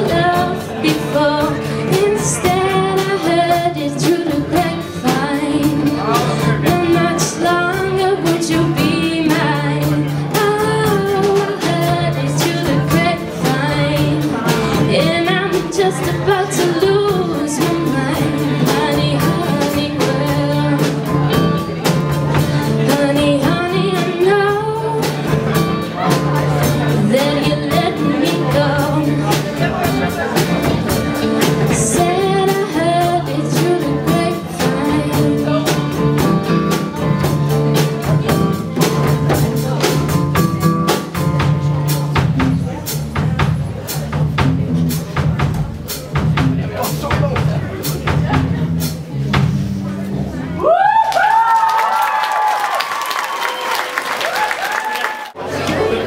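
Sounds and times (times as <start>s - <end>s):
girl singing: 0.0s - 21.2s, 22.6s - 26.2s, 26.8s - 29.5s, 31.5s - 37.6s
live band playing pop song: 0.0s - 51.4s.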